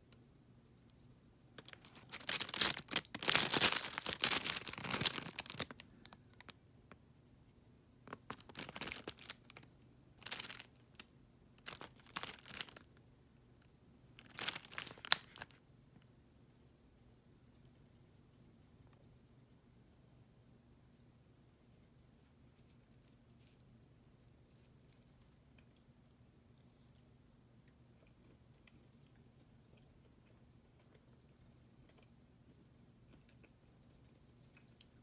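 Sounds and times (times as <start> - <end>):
plastic bag crinkling: 1.6 - 6.5, 8.1 - 11.0, 11.6 - 12.9, 14.2 - 15.6.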